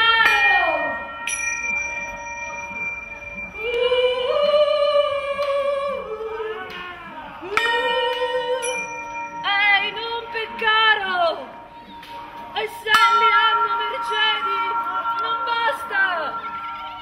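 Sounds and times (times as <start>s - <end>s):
struck metal bowl ringing: 0.0s - 4.4s, 7.6s - 11.3s, 12.8s - 17.0s.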